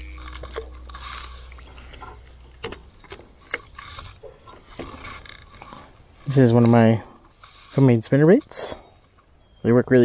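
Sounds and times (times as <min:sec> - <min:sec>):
faint low hum: 0:00.0 - 0:07.7.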